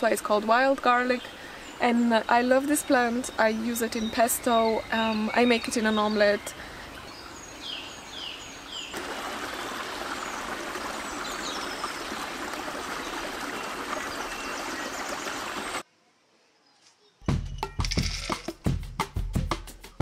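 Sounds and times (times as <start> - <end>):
stream rushing: 5.6 - 15.8.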